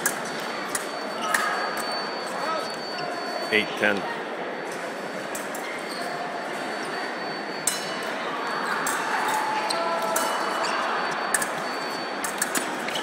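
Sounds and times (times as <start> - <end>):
crowd murmur in a hall: 0.0 - 13.0
fencing blades clinking: 7.6 - 8.1, 10.0 - 10.6.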